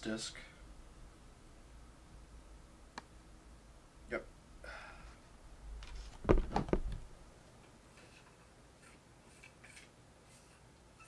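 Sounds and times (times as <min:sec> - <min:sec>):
sharp clicks and knocks: 0:05.8 - 0:07.1.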